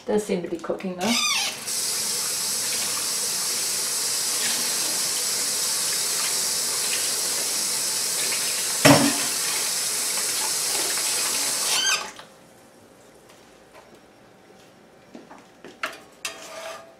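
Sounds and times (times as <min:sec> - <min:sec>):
eggs sizzling in hot oil: 0:01.3 - 0:12.0.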